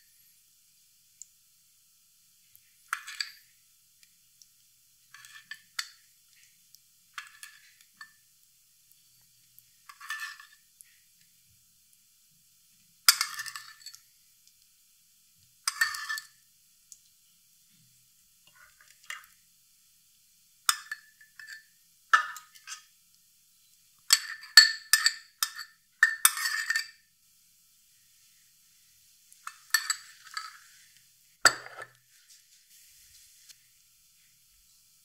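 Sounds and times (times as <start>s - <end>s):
metal spoon clinking on dishes: 2.9s - 3.5s, 7.2s - 8.2s, 9.9s - 10.6s, 13.1s - 14.0s, 15.7s - 16.4s, 20.7s - 22.9s, 24.1s - 27.0s, 29.4s - 30.6s, 31.5s - 32.0s.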